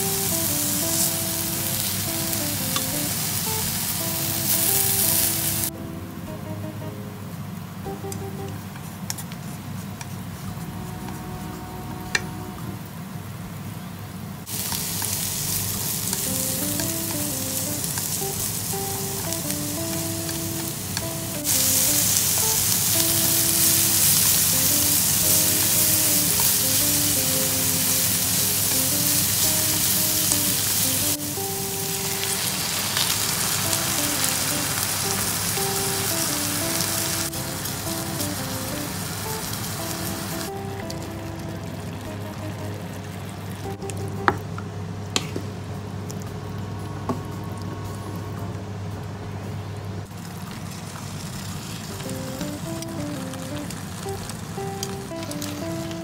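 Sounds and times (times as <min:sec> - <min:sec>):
food sizzling in a frying pan: 0:00.0 - 0:05.7, 0:14.4 - 0:43.8, 0:50.1 - 0:56.0
light background music: 0:00.0 - 0:09.0, 0:10.5 - 0:12.8, 0:16.0 - 0:44.6, 0:52.0 - 0:56.0.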